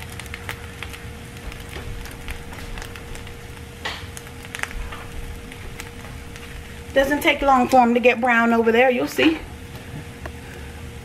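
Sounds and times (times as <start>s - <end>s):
crackling pops: 0.0s - 8.4s
eggs sizzling in a frying pan: 0.0s - 9.8s
faint steady hum: 0.0s - 11.0s.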